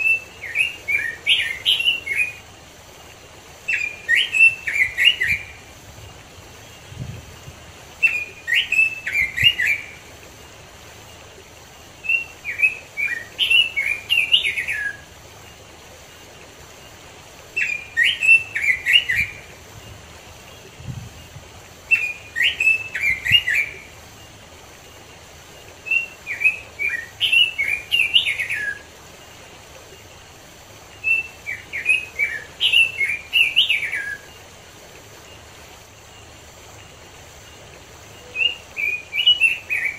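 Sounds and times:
bird singing warbled phrases: 0.0 - 2.5, 3.1 - 10.2, 11.8 - 15.2, 16.7 - 24.2, 25.6 - 30.1, 30.8 - 34.5, 38.0 - 39.9
stream water rushing: 0.0 - 39.9.

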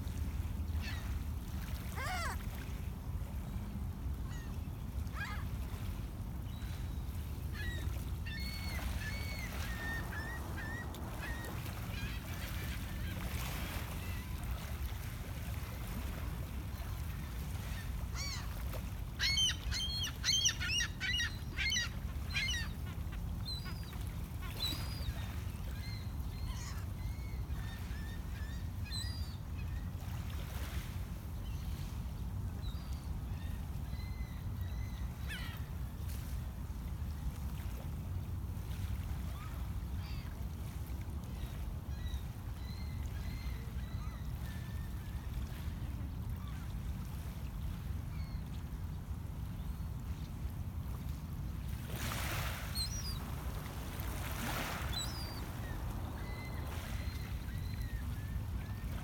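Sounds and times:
gulls calling: 1.8 - 2.4, 7.6 - 13.2, 19.2 - 26.9, 52.8 - 59.0.

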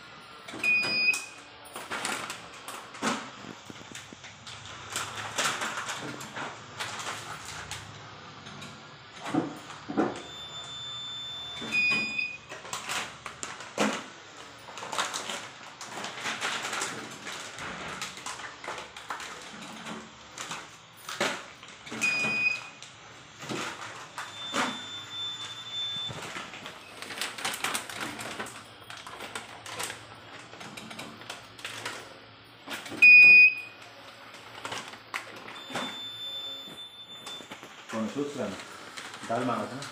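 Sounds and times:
long steady beep tones: 10.2 - 12.4, 24.2 - 26.2, 35.6 - 37.6.

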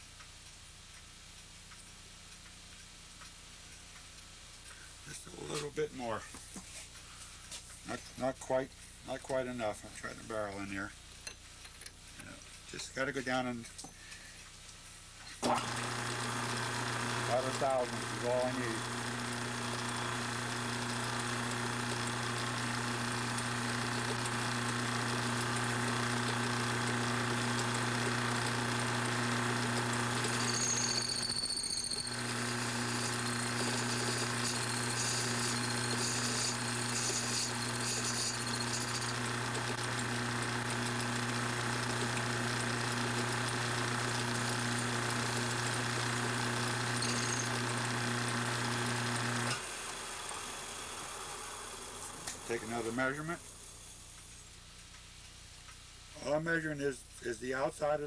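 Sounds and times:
tool cutting brass: 15.4 - 49.7
lathe motor humming: 15.4 - 53.0.

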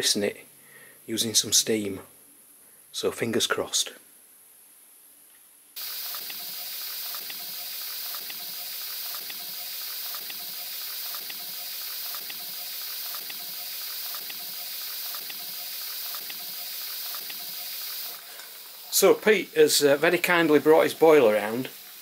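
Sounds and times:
steady hiss: 5.7 - 22.0.

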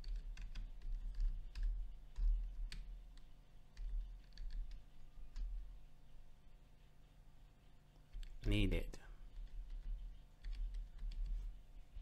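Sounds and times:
keyboard typing clicks: 0.0 - 5.6, 9.3 - 11.4.

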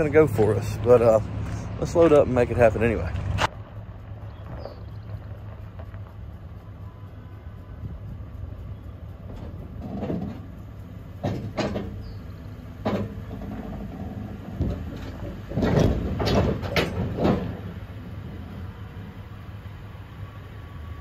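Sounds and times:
pickup truck engine running: 0.0 - 21.0
clunks from wooden trailer deck: 9.3 - 10.5, 11.2 - 12.2, 12.8 - 17.8.

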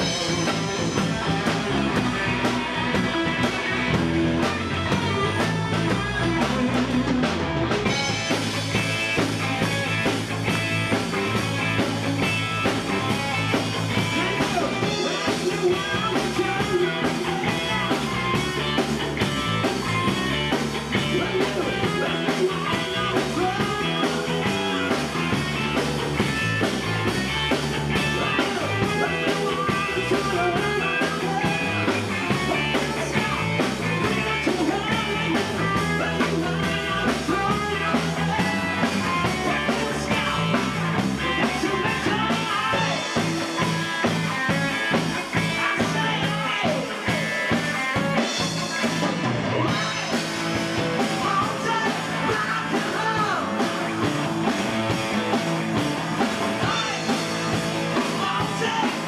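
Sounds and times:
man singing: 0.0 - 3.4, 11.3 - 50.2, 50.8 - 54.1, 56.5 - 59.0
live rock band playing: 0.0 - 59.0.

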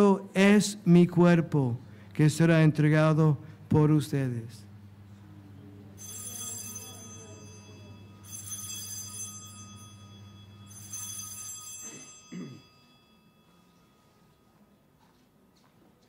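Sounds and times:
steady low hum: 0.0 - 15.4
altar bell ringing: 6.0 - 14.6.

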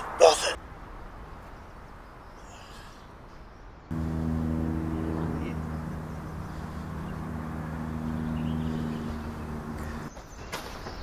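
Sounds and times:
low steady drone: 3.9 - 10.1.

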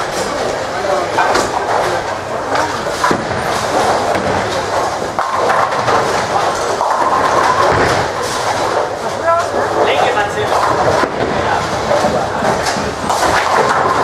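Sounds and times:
bowling balls rolling on lanes: 0.0 - 14.0
people talking: 0.3 - 3.0, 8.9 - 13.7
balls knocking pins: 1.2 - 14.0.

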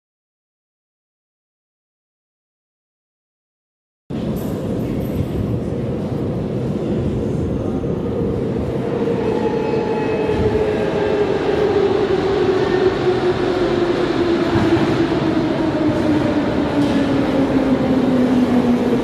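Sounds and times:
metro train approaching in tunnel: 4.1 - 19.0.

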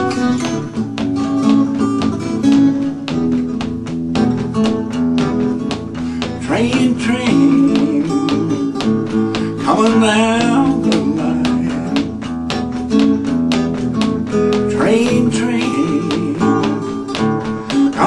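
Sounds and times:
acoustic guitar picked and strummed: 0.0 - 18.0
man's voice: 6.4 - 8.7, 14.7 - 16.7.

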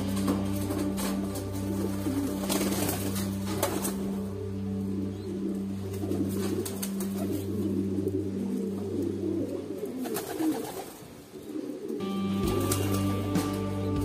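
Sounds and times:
music: 0.0 - 9.6, 11.9 - 14.0
pigeons cooing: 0.0 - 13.8.

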